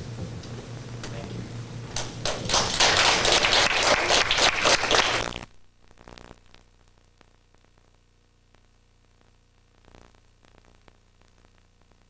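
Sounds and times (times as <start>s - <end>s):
audience applauding: 2.0s - 5.3s.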